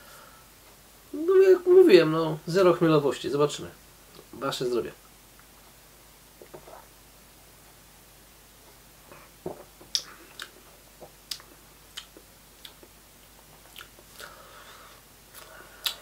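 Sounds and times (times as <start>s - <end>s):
person swallowing: 6.4s - 6.9s
wet lip smacks and tongue clicks: 9.9s - 10.6s, 11.3s - 12.9s.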